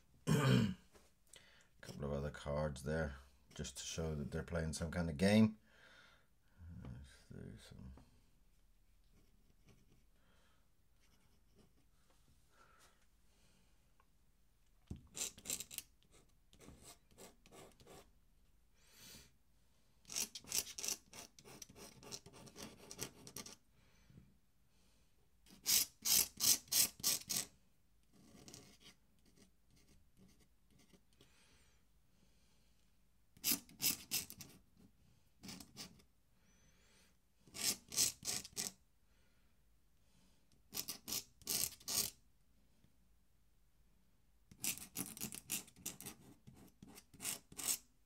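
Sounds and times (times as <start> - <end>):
pen nib scratching on paper: 15.1 - 18.1, 20.1 - 23.6, 37.5 - 38.7, 44.5 - 47.8.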